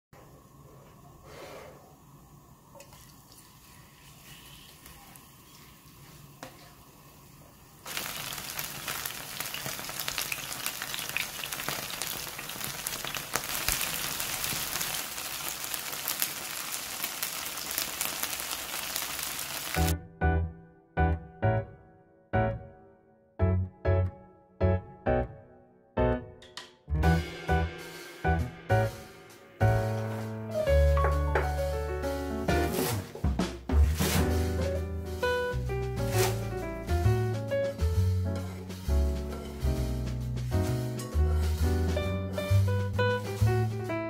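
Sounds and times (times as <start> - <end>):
pancake sizzling in hot oil: 3.4 - 19.9.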